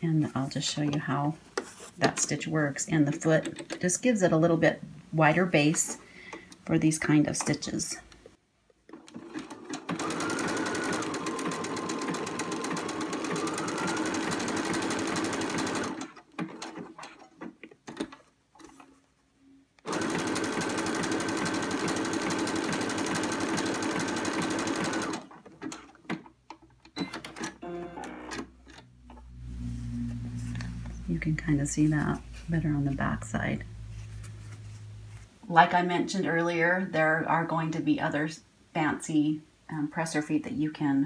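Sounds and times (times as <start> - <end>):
sewing machine stitching: 8.9 - 18.8, 19.8 - 26.3.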